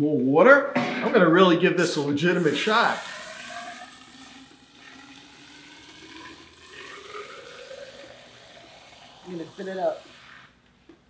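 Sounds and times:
water running into drain pipe: 0:01.9 - 0:10.6.

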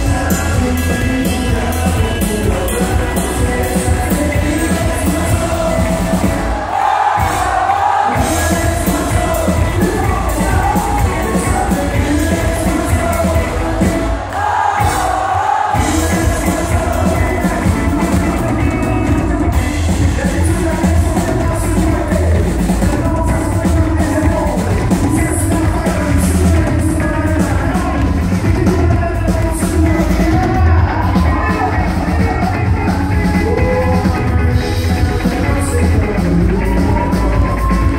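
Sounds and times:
live country-rock band: 0:00.0 - 0:37.9
man singing: 0:00.0 - 0:37.9.

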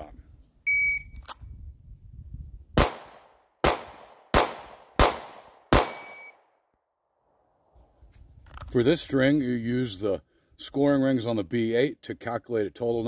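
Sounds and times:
shot timer beep: 0:00.7 - 0:01.2, 0:05.9 - 0:06.4
pistol shots: 0:02.8 - 0:06.3.

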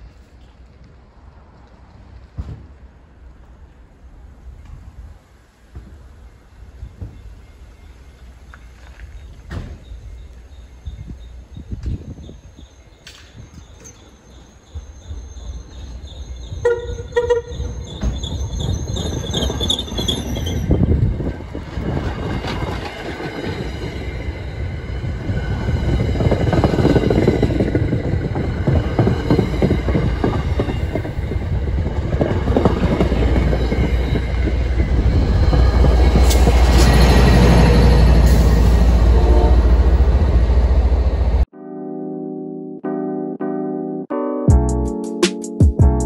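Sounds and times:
diesel locomotive engine rumble: 0:00.0 - 0:41.5
train horn blast: 0:16.6 - 0:17.7, 0:39.0 - 0:40.0
train wheels clacking on rails: 0:21.5 - 0:39.1.

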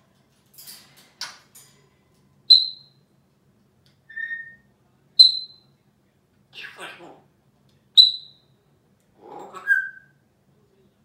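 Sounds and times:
parrot whistling: 0:04.1 - 0:04.6.

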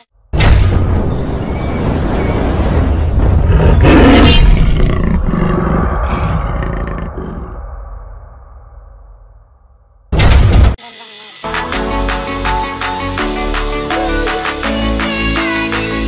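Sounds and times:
heavy low rumble: 0:00.6 - 0:10.1
deep animal-like roar: 0:03.4 - 0:07.7.

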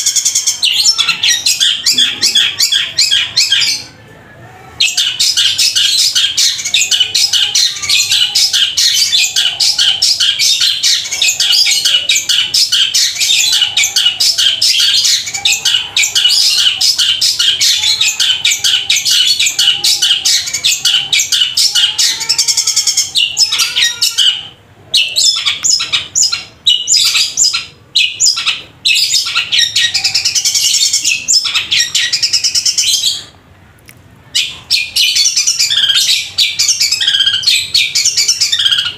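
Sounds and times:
bird singing rapid chattering song: 0:04.8 - 0:33.3.

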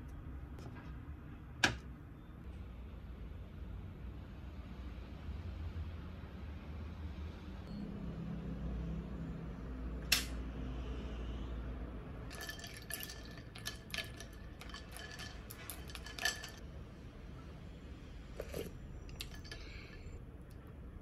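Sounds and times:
low steady hum: 0:07.7 - 0:21.0
dishes and cutlery clinking: 0:12.3 - 0:16.6, 0:18.4 - 0:20.2.

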